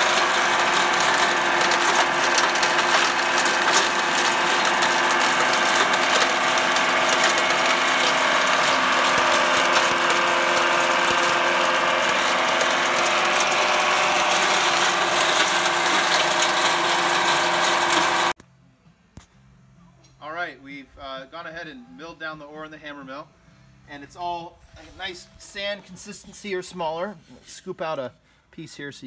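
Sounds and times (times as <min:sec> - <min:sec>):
hammer mill clattering: 0:00.0 - 0:18.3.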